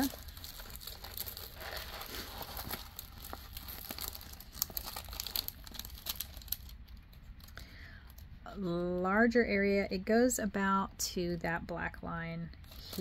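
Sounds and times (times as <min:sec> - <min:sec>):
plastic film crinkling: 0:00.0 - 0:08.3, 0:12.6 - 0:13.0.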